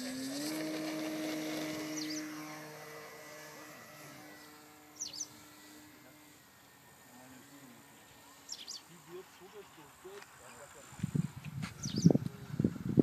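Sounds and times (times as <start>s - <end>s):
model airplane motor droning: 0.0s - 13.0s
bird chirping: 5.0s - 5.4s, 8.2s - 9.8s, 11.8s - 12.2s.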